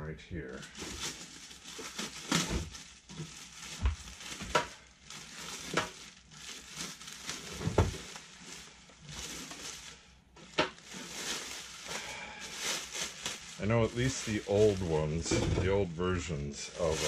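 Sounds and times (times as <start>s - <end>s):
packaging rustling and crinkling: 0.5s - 17.0s
heavy thump: 15.3s - 15.8s.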